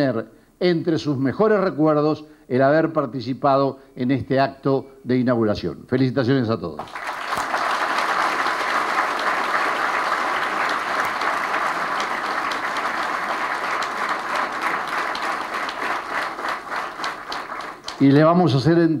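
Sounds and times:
audience applauding: 6.8s - 18.7s.

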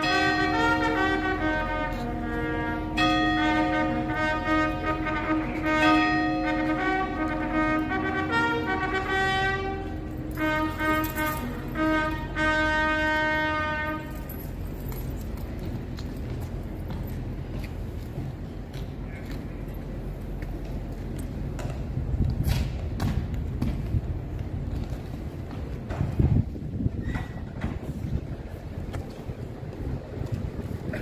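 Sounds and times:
trumpets playing long notes: 0.0s - 14.4s.

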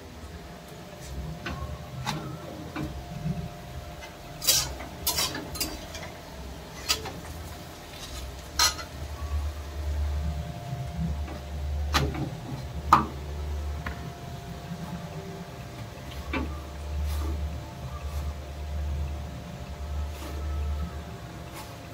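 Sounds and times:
steady low hum: 0.0s - 21.9s
metal utensil clinking in pan: 4.4s - 6.1s, 8.0s - 9.0s.

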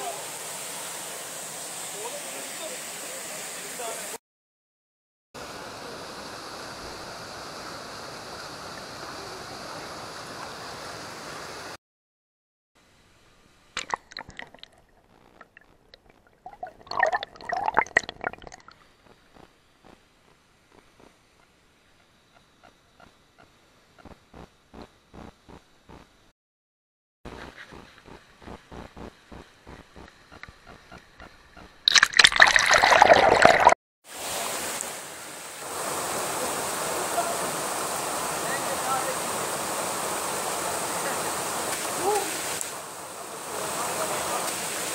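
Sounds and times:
stream water rushing: 0.0s - 4.2s, 31.9s - 44.9s
waterfall rushing: 0.0s - 4.2s, 34.1s - 44.9s
water sloshing and gurgling: 13.8s - 18.8s, 29.3s - 33.8s
water splashing: 13.8s - 18.8s, 27.7s - 42.8s.

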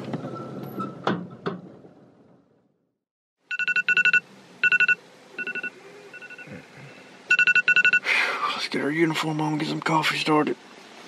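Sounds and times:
electronic alarm beeping: 3.5s - 6.5s, 7.3s - 8.1s.

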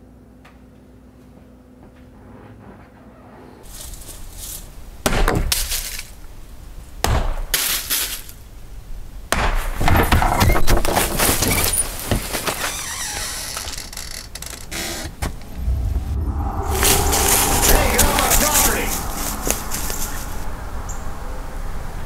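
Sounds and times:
stones hitting wood and glass: 5.0s - 6.2s, 7.0s - 8.4s.

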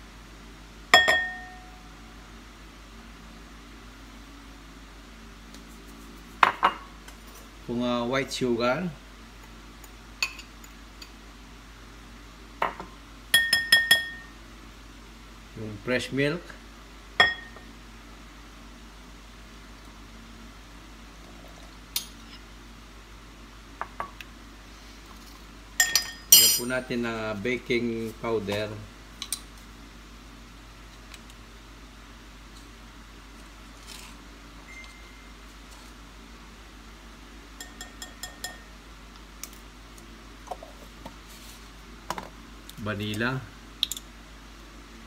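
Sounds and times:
bowls clinking on stone counter: 1.0s - 1.7s, 12.6s - 14.3s, 17.2s - 17.7s, 25.8s - 26.7s, 37.6s - 38.7s.

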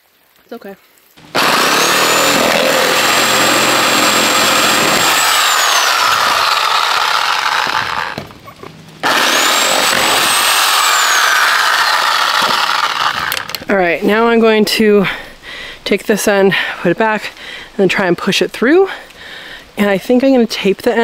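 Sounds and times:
reciprocating saw cutting plastic pipe: 1.2s - 8.3s, 9.0s - 13.6s.

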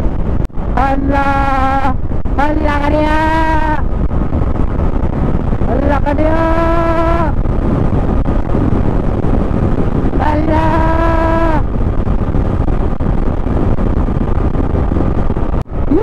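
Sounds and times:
wind and road noise: 0.0s - 16.0s.

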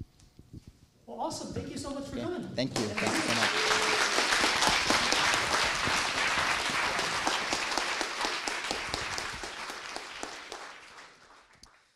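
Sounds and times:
audience applauding: 2.7s - 11.9s.

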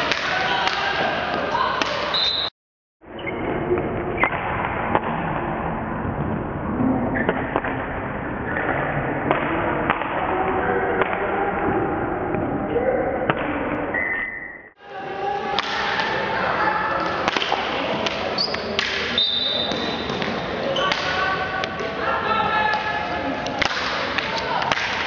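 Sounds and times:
players shouting: 0.0s - 2.5s
whistle blasts: 2.1s - 2.5s, 19.2s - 19.7s.

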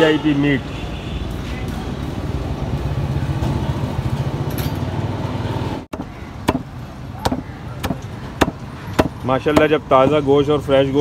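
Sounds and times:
cleaver chopping on wooden block: 5.9s - 9.8s.

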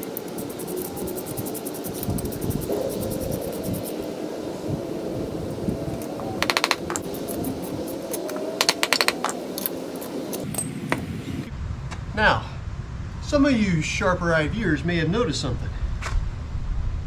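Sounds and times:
steady hum: 0.0s - 13.9s
rapid metallic clicking: 6.4s - 10.5s.

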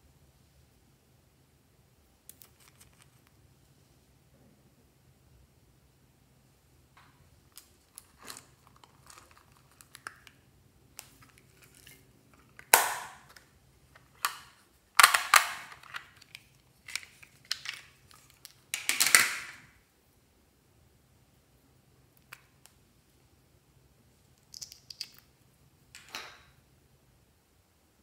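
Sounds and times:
plastic cases clicking: 11.8s - 19.6s.

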